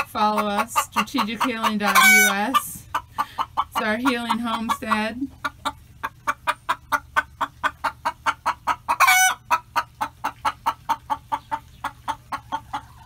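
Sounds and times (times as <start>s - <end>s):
hen clucking: 0.0s - 13.0s
hen squawking: 0.0s - 13.0s.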